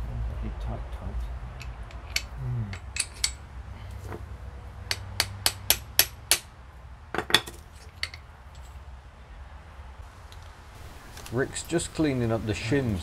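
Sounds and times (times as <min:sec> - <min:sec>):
hammer striking steel: 0:04.9 - 0:06.5.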